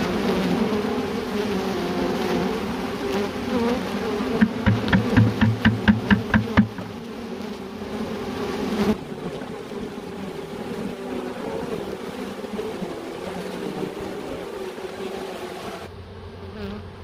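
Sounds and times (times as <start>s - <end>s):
bees humming: 0.0s - 17.0s
sharp knocks: 4.4s - 6.9s.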